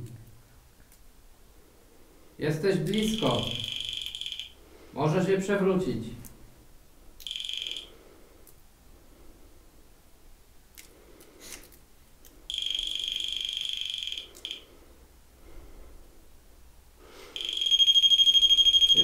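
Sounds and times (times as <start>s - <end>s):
high electronic alarm tone: 2.9s - 4.6s, 7.2s - 8.0s, 12.5s - 14.8s, 17.4s - 19.0s.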